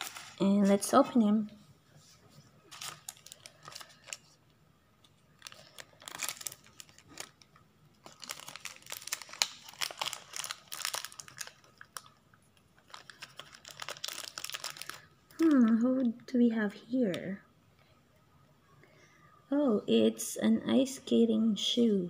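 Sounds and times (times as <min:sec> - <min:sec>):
plastic sachets crinkling and tearing: 0:00.0 - 0:01.0, 0:02.6 - 0:04.4, 0:05.0 - 0:15.8.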